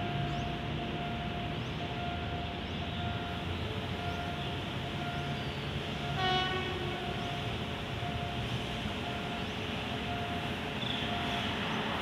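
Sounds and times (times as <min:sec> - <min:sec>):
road traffic rumble: 0:00.0 - 0:12.0
locomotive horn blast: 0:06.1 - 0:07.2.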